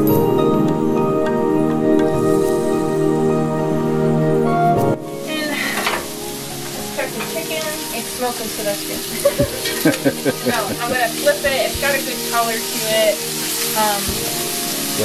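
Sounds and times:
chicken sizzling in oil: 0:05.0 - 0:15.0.

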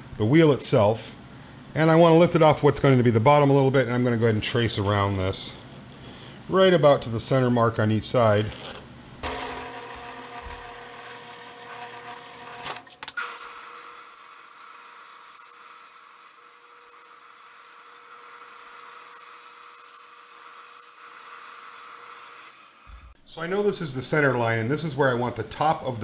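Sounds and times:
band saw cutting plywood: 0:08.5 - 0:23.2
power tool humming: 0:09.2 - 0:23.2.

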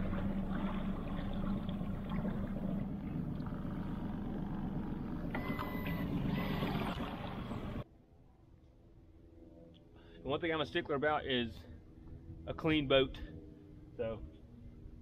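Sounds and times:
outboard motor running: 0:00.0 - 0:07.8
water rushing past hull: 0:00.0 - 0:07.8.

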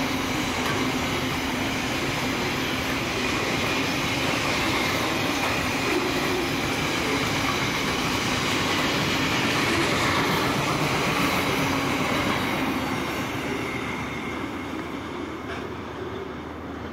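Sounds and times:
freight train rumbling on rails: 0:00.0 - 0:16.9
train wheel squeal: 0:00.0 - 0:16.9.

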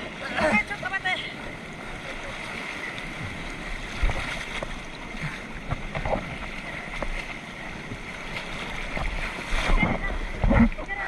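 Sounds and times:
whitewater rushing: 0:00.0 - 0:11.0.

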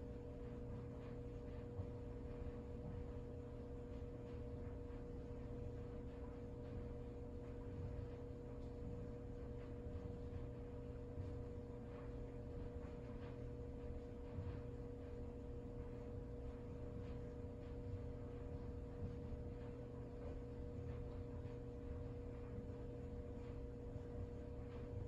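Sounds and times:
steady electrical hum: 0:00.0 - 0:25.0.

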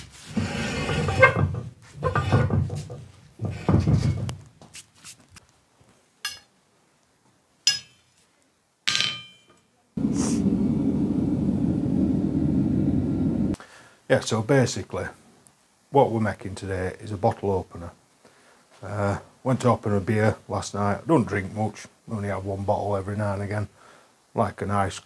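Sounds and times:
heavy knocks at anvil: 0:08.9 - 0:09.6
gas forge burner rushing: 0:10.0 - 0:13.6.

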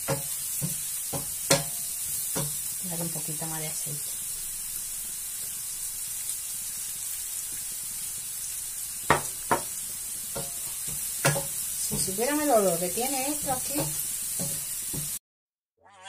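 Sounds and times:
wooden spoon knocking on pan: 0:00.0 - 0:02.7, 0:09.1 - 0:09.8, 0:10.4 - 0:12.5, 0:13.3 - 0:15.2
leeks sizzling in oil: 0:00.0 - 0:15.2.

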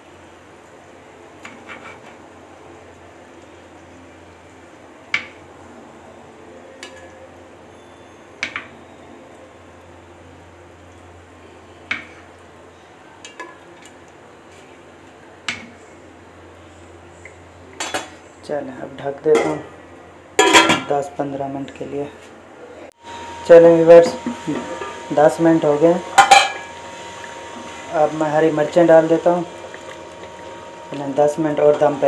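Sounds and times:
metal tongs clinking on pot: 0:26.2 - 0:26.7.

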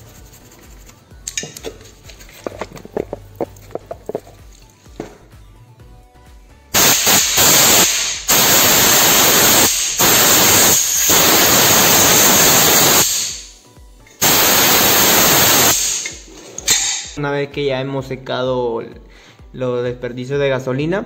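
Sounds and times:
compressed air blasts hissing: 0:06.8 - 0:13.5, 0:14.2 - 0:17.2.

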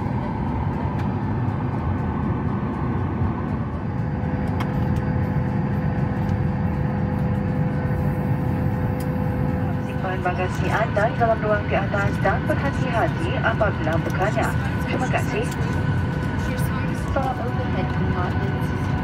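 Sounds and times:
airplane cabin air rushing: 0:00.0 - 0:19.0.

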